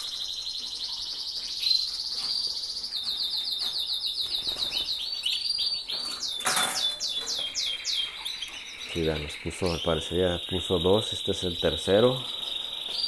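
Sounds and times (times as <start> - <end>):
canaries singing trills: 0.0 - 13.0.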